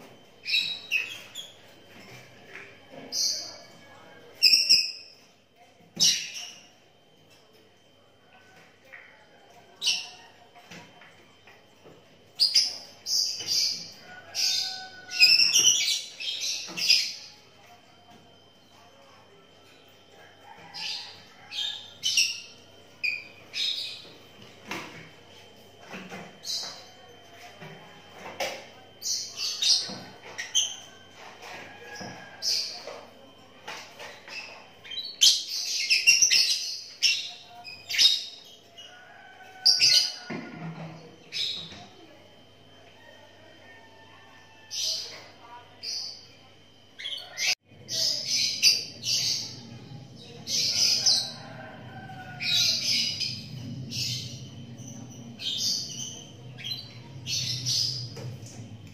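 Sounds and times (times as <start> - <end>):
lovebirds chattering calls: 12.4 - 17.3, 50.4 - 58.4.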